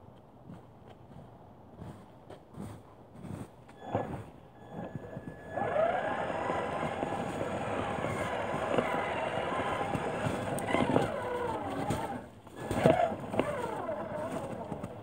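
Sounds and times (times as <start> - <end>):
electric motor whining: 3.8 - 15.0.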